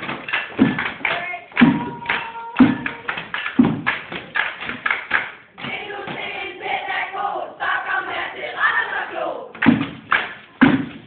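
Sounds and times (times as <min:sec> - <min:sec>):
loud sharp thumps: 0:02.6 - 0:04.9, 0:09.6 - 0:11.0
women singing in chorus: 0:05.6 - 0:09.6.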